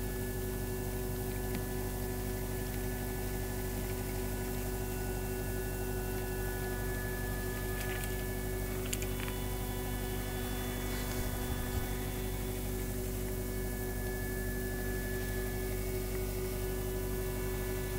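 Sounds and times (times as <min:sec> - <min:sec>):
steady hum of held tones: 0:00.0 - 0:17.9.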